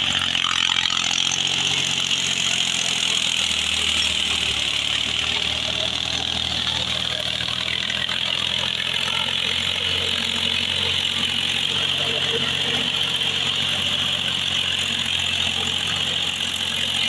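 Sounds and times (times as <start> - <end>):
diesel tractor engine running: 0.0 - 17.0.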